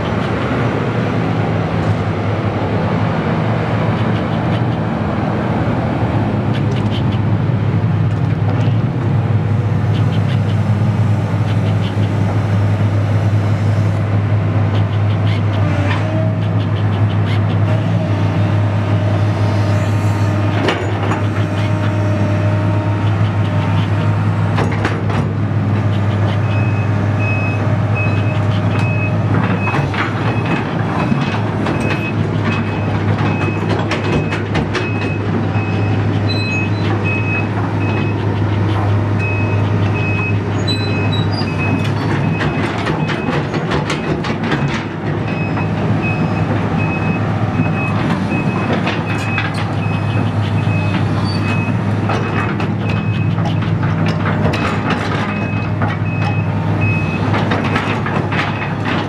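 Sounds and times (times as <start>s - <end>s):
diesel excavator engine running: 0.0s - 59.0s
motion alarm beeping: 34.9s - 38.2s, 39.2s - 42.6s
sharp metal clanks and knocks: 50.9s - 56.4s.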